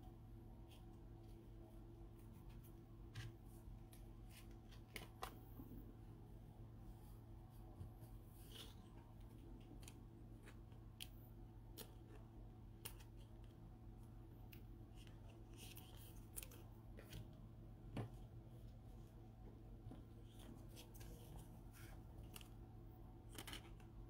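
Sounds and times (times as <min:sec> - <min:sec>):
low steady hum: 0:00.0 - 0:24.0.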